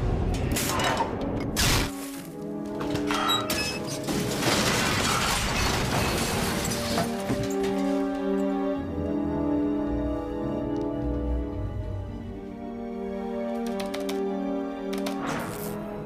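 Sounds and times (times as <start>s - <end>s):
film score music: 0.0s - 16.0s.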